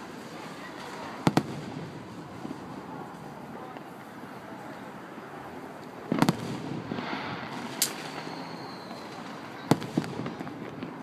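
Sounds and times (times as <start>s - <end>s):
firework shells bursting: 6.1s - 11.0s.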